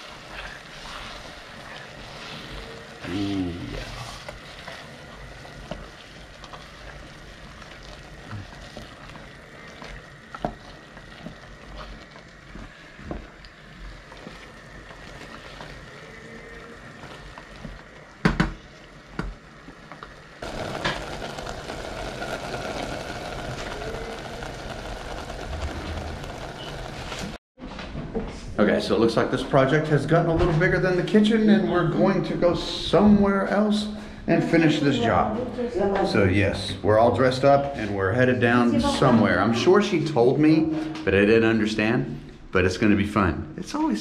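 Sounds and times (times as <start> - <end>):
food sizzling in a pan: 0.0 - 27.4.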